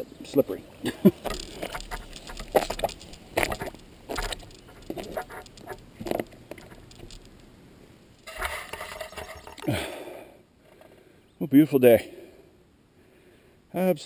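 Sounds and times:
footsteps on wet ground: 1.2 - 7.3.

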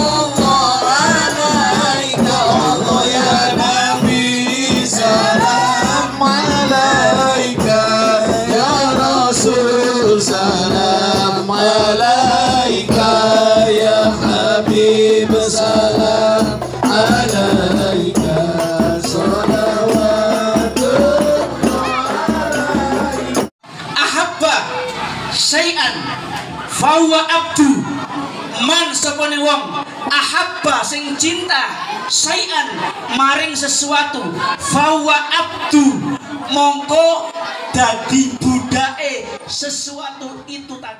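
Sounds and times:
children singing in unison: 0.0 - 23.4
frame drums beating: 0.0 - 23.5.

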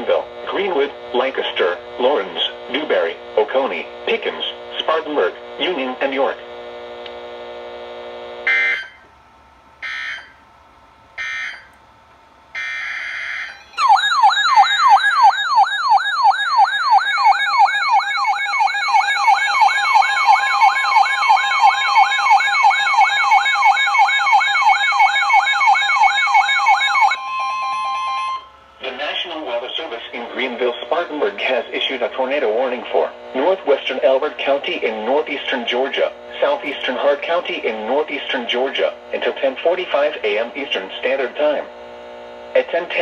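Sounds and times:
electronic warbling siren alarm: 8.4 - 9.1, 9.8 - 10.4, 11.2 - 11.7, 12.5 - 29.2.

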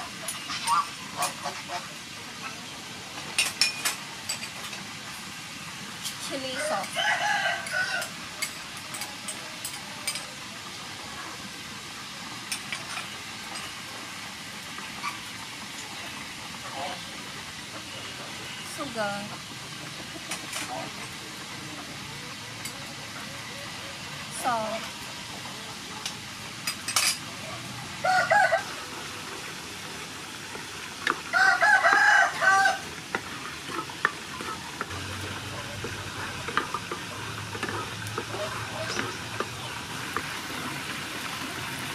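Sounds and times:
sauce sizzling in hot oil: 0.0 - 41.9
rooster crowing: 6.6 - 8.2, 28.0 - 28.9, 31.3 - 32.9.

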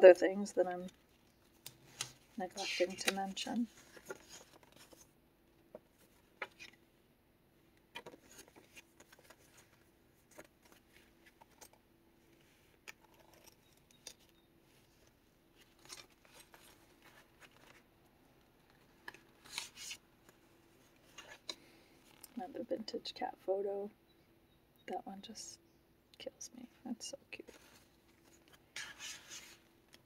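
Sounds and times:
paper rustling and turning: 0.7 - 5.1, 5.7 - 6.8, 7.9 - 11.8, 12.4 - 17.9, 18.6 - 22.4, 27.4 - 30.0.

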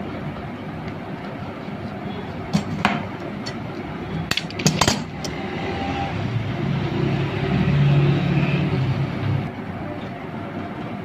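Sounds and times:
metal parts clicking and clinking: 4.3 - 5.4.

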